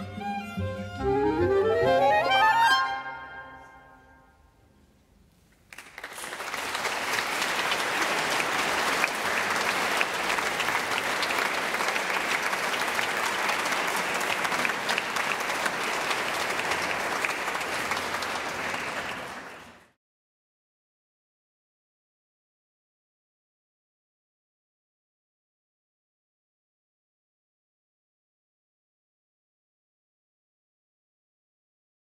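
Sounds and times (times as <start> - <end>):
audience applauding: 5.6 - 20.0.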